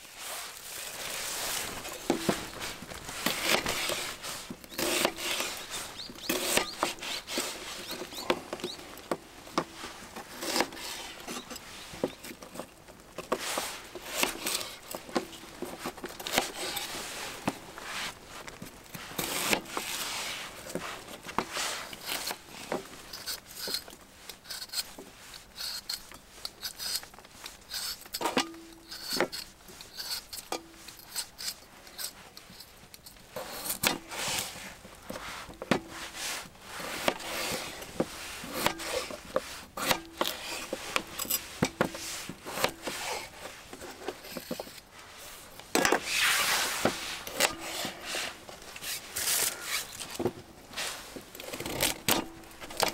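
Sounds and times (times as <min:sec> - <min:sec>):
rustling: 0:00.0 - 0:52.9.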